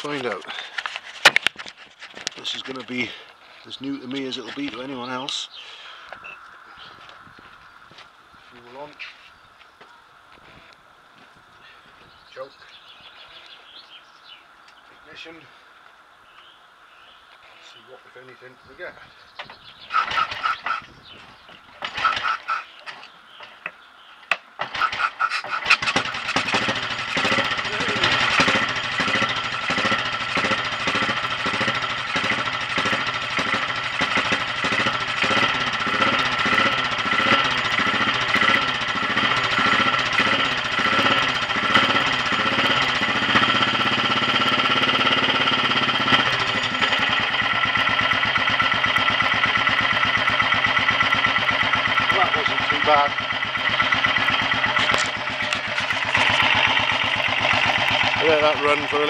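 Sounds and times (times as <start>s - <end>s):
motorcycle engine revving and idling: 1.4s - 5.2s, 18.7s - 22.8s, 24.6s - 59.0s.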